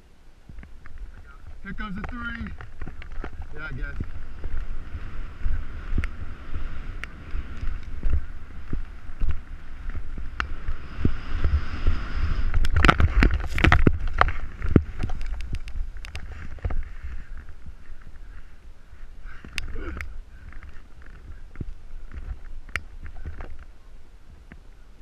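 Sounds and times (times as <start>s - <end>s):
wind buffeting microphone: 0.0s - 25.0s
snowboard scraping over snow: 1.2s - 18.6s.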